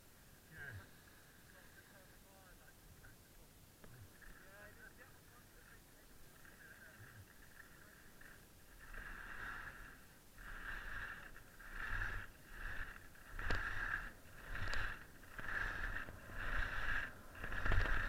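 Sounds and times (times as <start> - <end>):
skis scraping over snow: 4.2 - 18.0.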